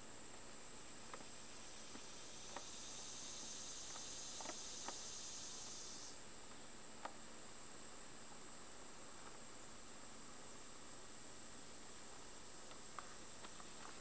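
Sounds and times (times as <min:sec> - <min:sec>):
insects chirring: 0:00.0 - 0:06.2
faint ticks: 0:01.9 - 0:07.2, 0:12.6 - 0:14.0.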